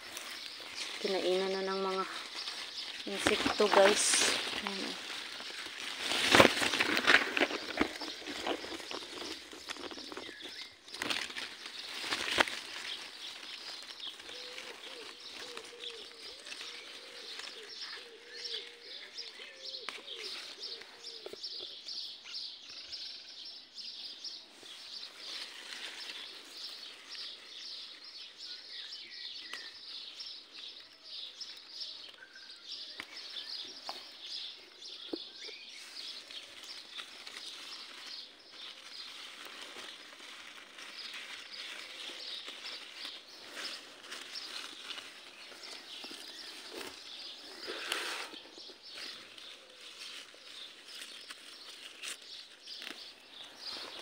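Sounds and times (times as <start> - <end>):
small birds chirping: 0.0 - 54.0
dove cooing: 14.1 - 21.4.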